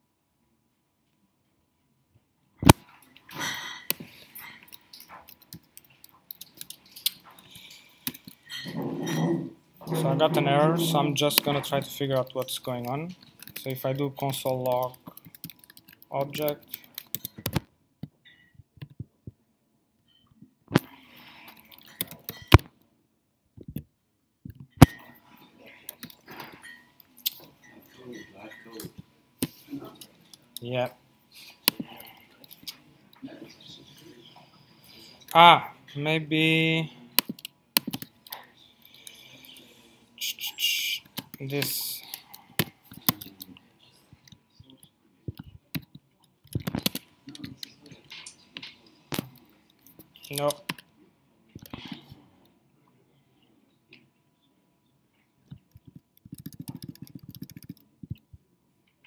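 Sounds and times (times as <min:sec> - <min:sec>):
typing on laptop keyboard: 0:12.1 - 0:17.7, 0:37.2 - 0:39.4, 0:44.7 - 0:47.8, 0:55.5 - 0:58.3.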